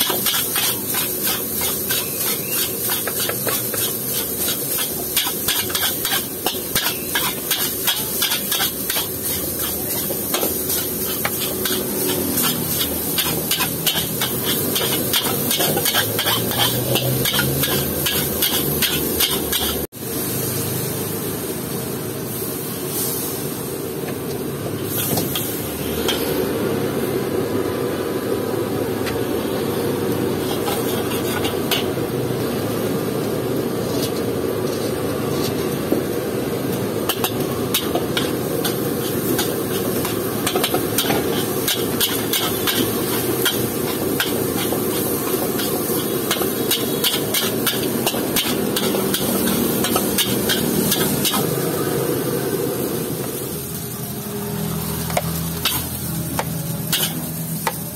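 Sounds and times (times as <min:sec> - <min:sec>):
metal spatula scraping a wok: 0:00.0 - 0:19.9, 0:24.8 - 0:26.4, 0:30.2 - 0:32.0, 0:33.8 - 0:35.9, 0:36.9 - 0:52.0, 0:54.8 - 0:57.9
frying sizzle: 0:00.0 - 0:57.9
gas burner rushing: 0:22.2 - 0:57.7.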